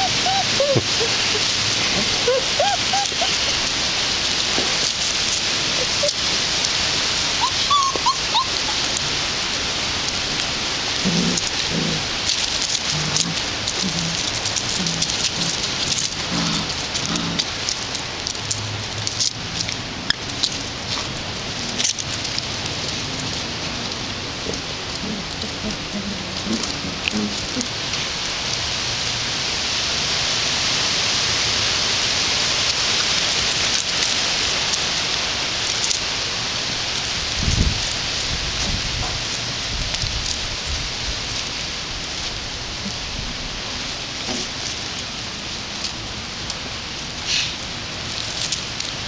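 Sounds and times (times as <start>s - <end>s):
squeaky toy squeaks: 0.0s - 1.5s, 2.2s - 3.5s, 7.4s - 8.8s
puppies growling: 0.0s - 28.6s
steady hiss: 0.0s - 49.0s.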